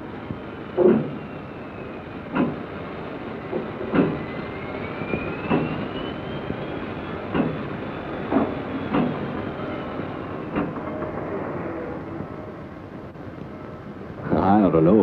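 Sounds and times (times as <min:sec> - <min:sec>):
train rumble: 0:00.0 - 0:15.0
freight train cars clanking: 0:00.7 - 0:01.3, 0:02.3 - 0:02.7, 0:03.5 - 0:04.3, 0:05.4 - 0:05.9, 0:07.2 - 0:12.2
faint high squeal: 0:03.5 - 0:12.2.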